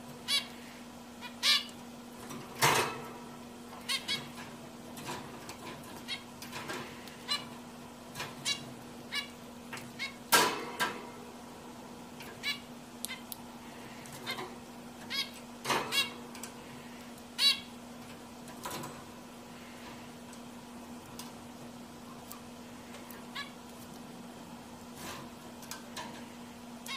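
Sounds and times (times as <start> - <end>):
finch calls: 0.2 - 0.6, 1.2 - 1.8, 3.8 - 4.4, 7.2 - 7.5, 8.4 - 10.2, 12.3 - 13.4, 14.2 - 16.2, 17.4 - 17.7, 23.3 - 23.6.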